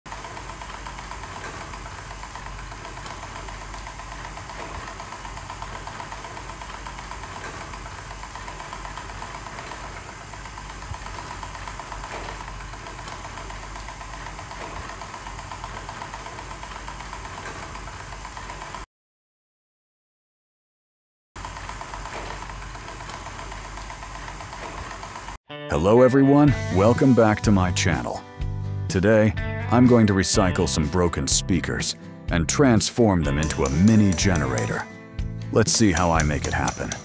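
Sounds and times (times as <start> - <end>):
generator rig whirring and rattling: 0.1 - 18.9, 21.4 - 25.4, 33.2 - 37.0.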